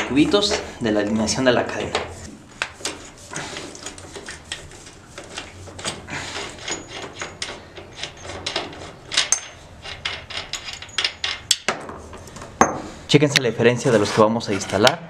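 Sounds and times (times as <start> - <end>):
metallic clicks and clinks: 6.6 - 11.7
ringing metal chinks: 9.1 - 9.6, 10.3 - 11.7.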